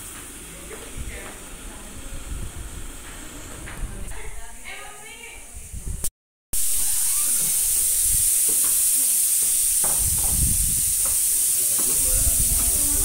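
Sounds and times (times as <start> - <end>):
footsteps on stairs: 0.0 - 1.9, 2.5 - 4.2, 9.4 - 12.8
steady high hiss: 0.0 - 3.5, 4.5 - 13.0
faint voices: 0.4 - 5.8, 11.5 - 13.0.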